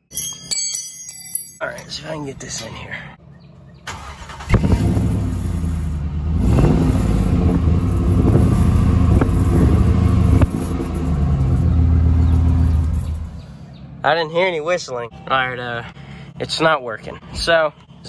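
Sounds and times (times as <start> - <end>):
pickup truck engine revving: 3.9 - 13.5.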